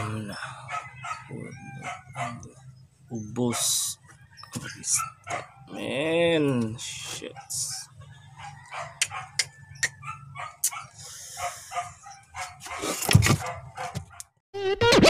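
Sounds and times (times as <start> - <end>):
dog barking and yipping: 0.4 - 2.7, 3.4 - 5.8, 7.2 - 14.4.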